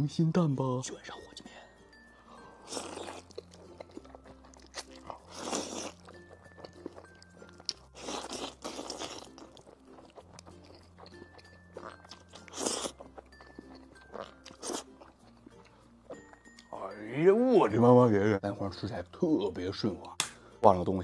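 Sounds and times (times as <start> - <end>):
soft background music: 0.0 - 21.0
wet chewing: 2.5 - 16.7
noodles slurped: 2.6 - 7.0, 7.6 - 13.3, 14.1 - 15.7.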